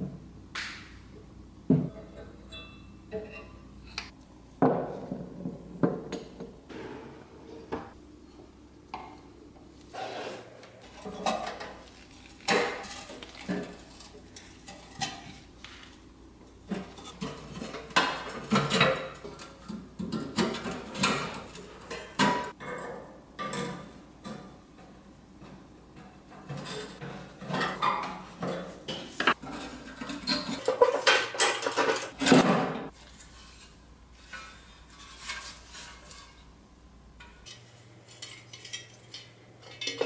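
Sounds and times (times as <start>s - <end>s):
metallic clinks and scrapes: 29.5s - 32.3s, 37.4s - 40.0s.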